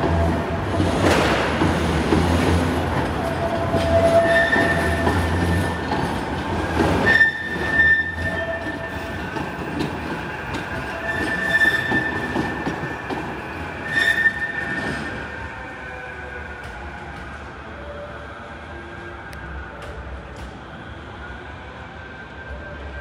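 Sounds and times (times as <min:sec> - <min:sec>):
tram wheels squealing: 0:00.0 - 0:20.1
tram low running rumble: 0:14.5 - 0:23.0.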